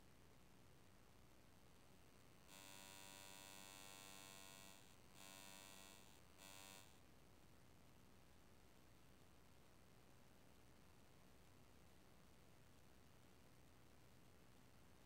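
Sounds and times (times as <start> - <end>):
faint electrical buzz: 1.6 - 7.2.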